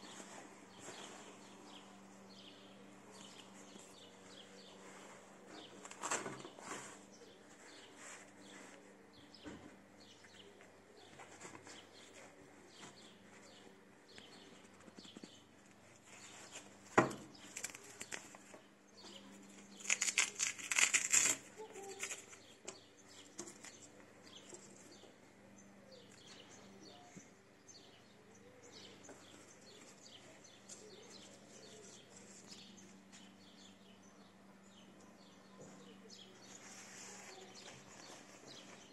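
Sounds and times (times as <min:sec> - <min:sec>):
birds chirping faintly: 0:00.0 - 0:38.9
velcro strap ripping open: 0:19.8 - 0:22.3.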